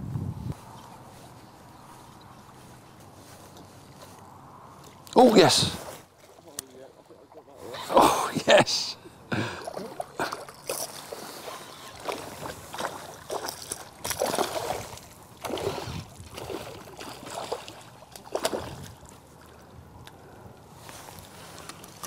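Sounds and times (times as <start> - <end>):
fish splashing in water: 9.6 - 19.6.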